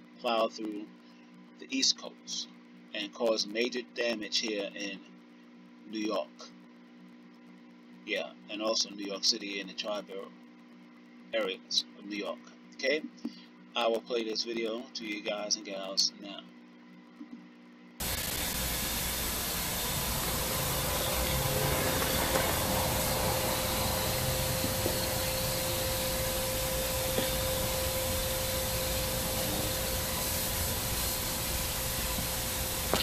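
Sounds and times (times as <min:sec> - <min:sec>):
recording noise hiss: 0:00.0 - 0:22.0.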